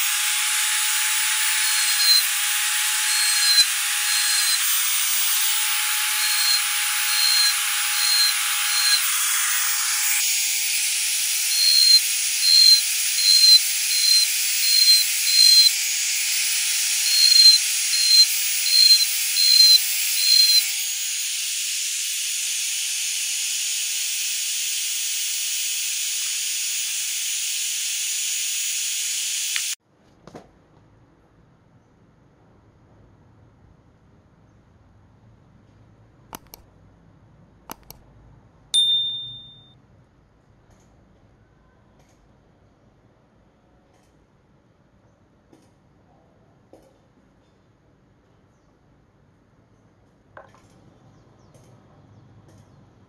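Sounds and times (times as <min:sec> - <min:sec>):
rotary tool whining: 0:00.0 - 0:29.8, 0:36.4 - 0:36.6
bit scraping wood: 0:00.5 - 0:10.2, 0:11.5 - 0:15.7, 0:17.0 - 0:20.6.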